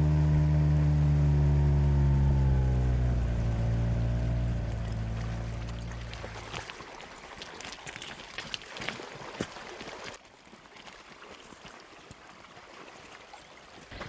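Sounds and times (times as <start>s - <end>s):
shallow water splashing: 3.0s - 14.0s.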